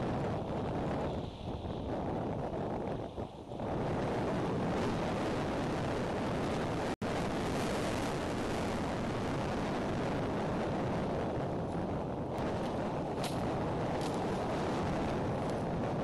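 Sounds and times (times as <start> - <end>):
strong wind on microphone: 0.0 - 16.0.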